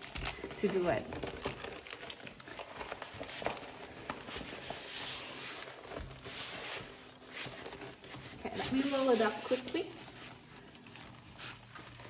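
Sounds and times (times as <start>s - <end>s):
plastic film rustling and crinkling: 0.0s - 12.0s.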